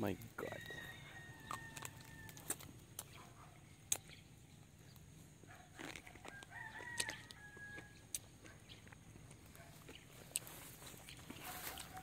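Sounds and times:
rooster crowing faintly: 0.4 - 2.7, 6.0 - 8.1, 11.4 - 12.0.

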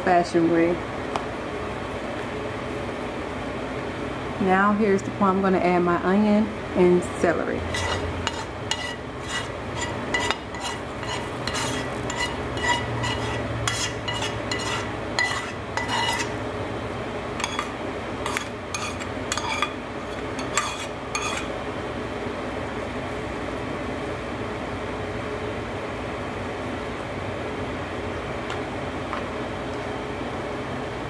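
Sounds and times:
utensil scraping metal pan: 7.7 - 16.4, 17.4 - 21.5.

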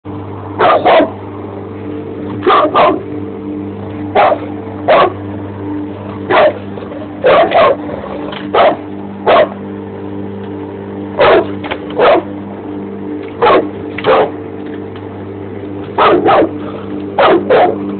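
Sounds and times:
lawn mower engine hum: 0.0 - 17.9
dog barking: 0.6 - 1.2, 2.4 - 3.0, 4.2 - 5.2, 6.3 - 6.6, 7.2 - 7.8, 8.5 - 9.6, 11.2 - 12.3, 13.4 - 14.4, 16.0 - 16.6, 17.2 - 17.8.

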